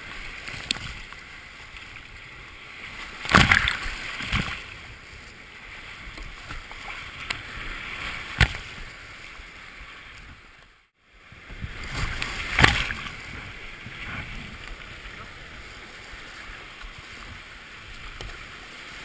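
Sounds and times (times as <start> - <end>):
whitewater rushing and splashing: 0.0 - 10.4, 11.2 - 19.0
paddle strokes hitting water: 2.8 - 10.4, 11.6 - 15.2
big splash: 3.1 - 4.7, 11.7 - 13.2.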